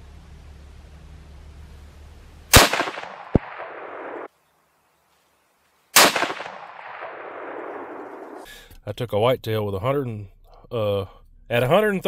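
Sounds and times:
rifle shots echoing: 2.5s - 4.3s, 5.9s - 8.4s.

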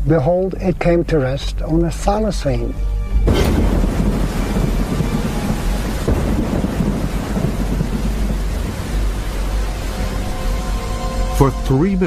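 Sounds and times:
thunder rumbling: 3.2s - 11.5s
heavy rain: 3.2s - 12.0s.

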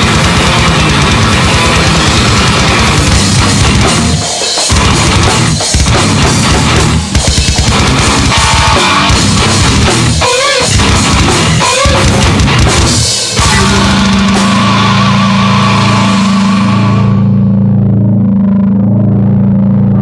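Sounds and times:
drum kit: 0.0s - 17.6s
bass guitar: 0.0s - 20.0s
distorted electric guitar: 0.0s - 20.0s
wavering high guitar note: 8.2s - 12.5s, 13.3s - 20.0s.

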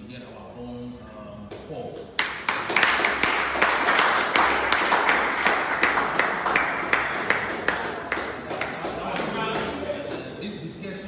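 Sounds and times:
crowd applauding: 2.2s - 10.2s.

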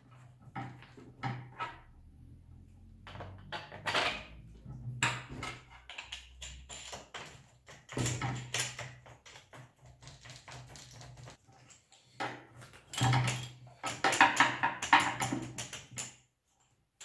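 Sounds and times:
plastic clicks and rattles: 5.0s - 16.2s.

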